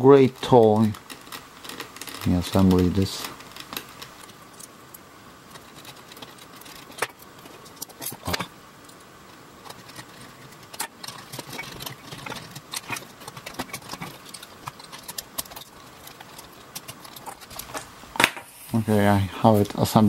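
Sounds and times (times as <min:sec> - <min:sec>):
plastic toy parts clicking: 0:09.6 - 0:17.9.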